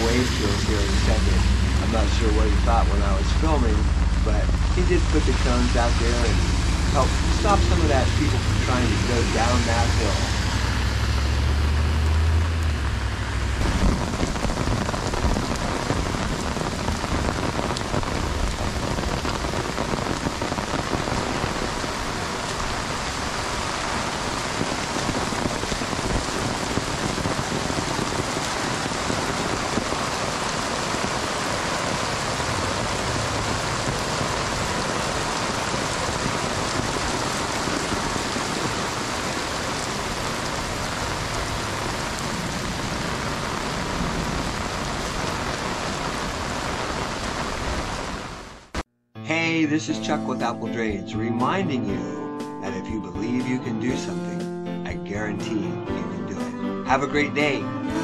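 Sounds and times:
vehicle rumble: 0:00.0 - 0:45.8
heavy rain: 0:00.0 - 0:48.8.

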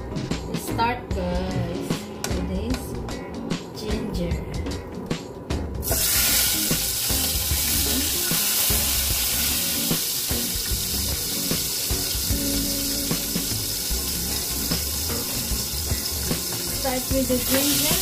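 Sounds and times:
ginger sizzling in oil: 0:05.8 - 0:18.0.

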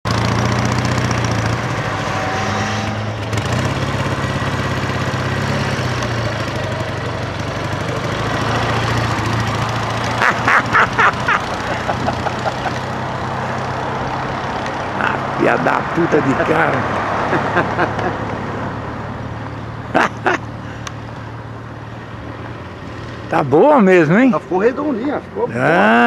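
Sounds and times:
motorcycle engine running: 0:00.1 - 0:15.2
short horn honks: 0:01.7 - 0:03.2.

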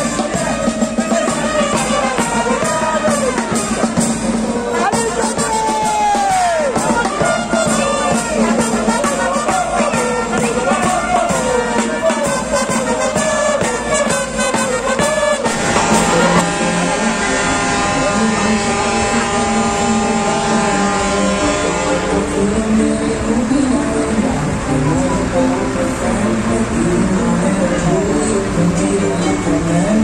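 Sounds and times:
marching band brass and drums: 0:00.0 - 0:22.4
music with long held notes: 0:00.0 - 0:30.0.

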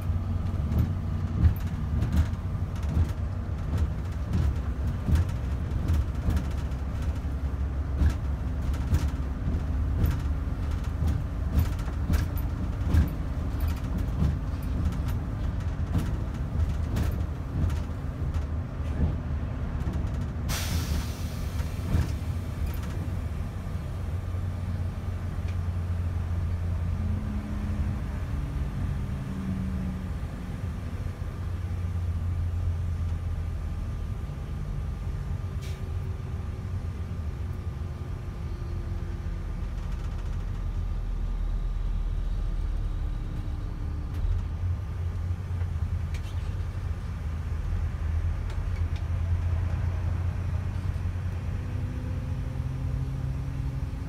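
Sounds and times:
bus engine and road rumble: 0:00.0 - 0:54.0
knocks and rattles: 0:00.5 - 0:07.3, 0:07.9 - 0:19.2
air brake hiss: 0:20.5 - 0:21.7.

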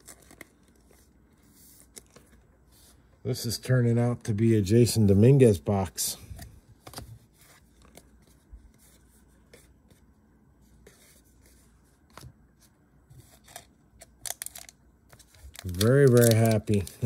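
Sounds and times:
trading cards rustling and clicking: 0:00.0 - 0:02.5, 0:06.4 - 0:10.0, 0:13.2 - 0:17.0.

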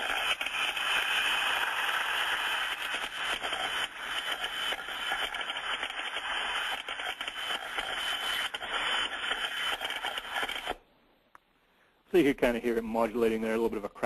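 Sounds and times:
crackling burbling steam trap: 0:00.0 - 0:10.8.

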